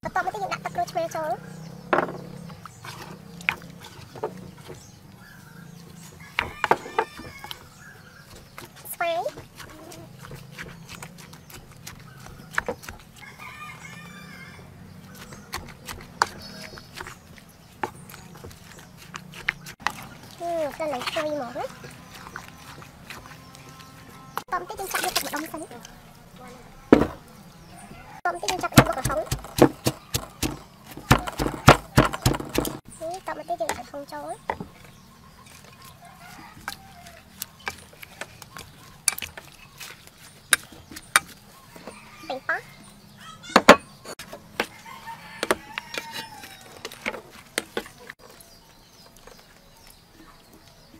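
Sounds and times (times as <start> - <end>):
wooden spoon knocking mortar: 1.9 - 2.7, 6.2 - 13.4, 15.0 - 23.8, 28.3 - 34.8, 43.5 - 44.8, 45.4 - 48.1
rooster crowing: 6.1 - 7.7, 13.2 - 14.8, 27.7 - 28.3, 36.0 - 37.4, 41.6 - 43.6, 44.6 - 46.8
spoon knocking mixing vessel: 28.5 - 32.8.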